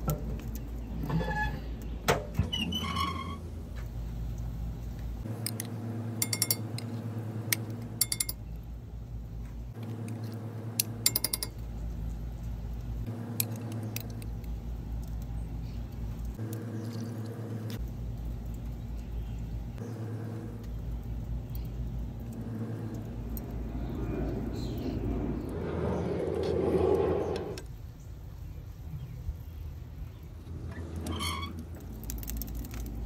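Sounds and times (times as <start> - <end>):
steady low hum: 3.4 - 27.7.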